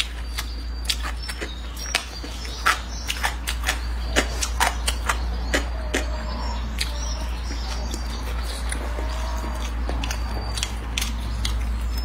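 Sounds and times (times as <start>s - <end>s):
person chewing food: 0.0s - 12.0s
mouth clicks and smacks: 6.7s - 12.0s.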